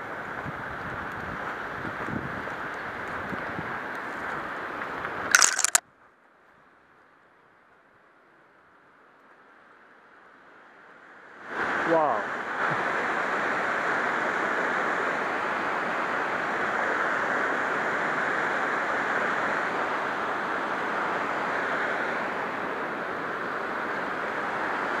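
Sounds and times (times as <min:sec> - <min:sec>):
water rushing over cascades: 0:11.4 - 0:25.0.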